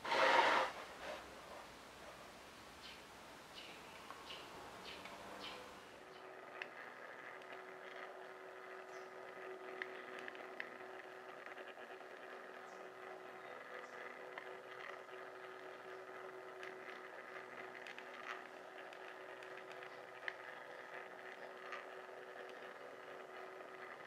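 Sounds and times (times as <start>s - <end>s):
small electric motor humming: 4.8s - 24.0s.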